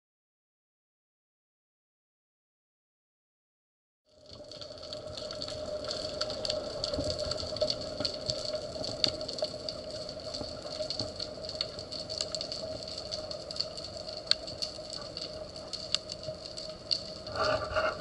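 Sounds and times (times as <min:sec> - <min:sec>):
small underwater clicks and crackles: 0:04.1 - 0:18.0.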